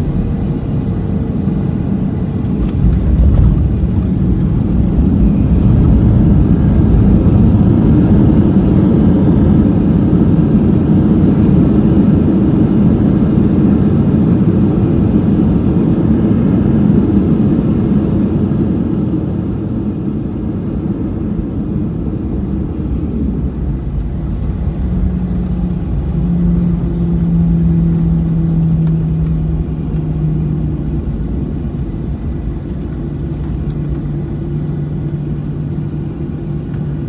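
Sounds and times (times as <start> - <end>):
low rumble of engines and wheels: 0.0 - 37.0
steady hum: 19.3 - 37.0.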